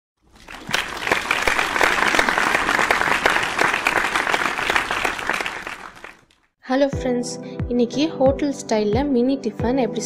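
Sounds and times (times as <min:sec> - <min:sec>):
audience applause: 0:00.3 - 0:06.4.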